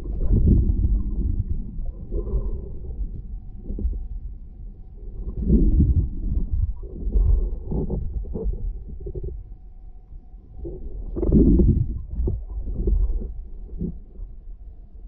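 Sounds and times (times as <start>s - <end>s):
muffled underwater rumble: 0.0s - 15.0s.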